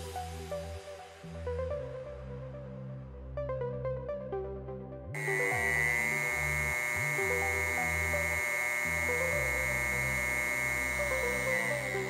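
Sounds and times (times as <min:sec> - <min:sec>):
spindle motor high whine: 0:05.2 - 0:12.0.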